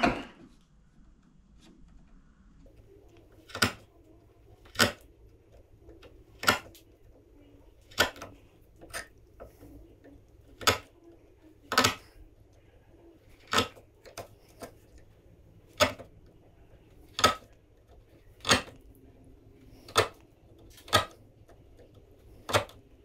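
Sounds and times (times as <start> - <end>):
chisel paring wood clicks: 3.5 - 3.9, 4.6 - 5.1, 6.0 - 6.9, 7.9 - 9.1, 10.5 - 10.9, 11.7 - 12.0, 13.4 - 14.8, 15.7 - 16.1, 17.1 - 18.9, 19.8 - 22.8.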